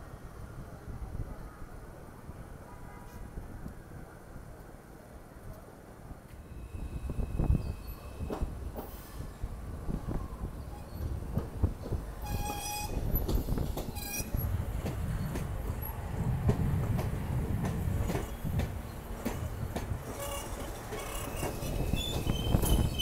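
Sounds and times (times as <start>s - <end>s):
train wheels rumbling on track: 6.2s - 23.0s
rail-joint clicks: 7.5s - 9.3s, 10.7s - 23.0s
high-pitched wheel squeal: 12.2s - 13.0s, 13.9s - 14.4s, 20.1s - 23.0s
train horn toot: 12.2s - 13.0s, 20.1s - 21.2s.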